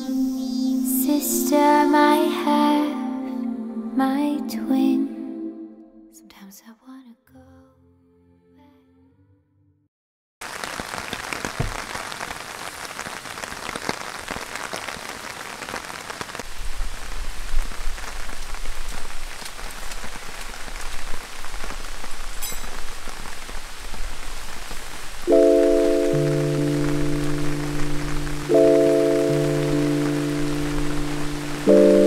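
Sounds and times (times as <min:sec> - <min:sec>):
heavy rain falling: 0:10.4 - 0:32.0.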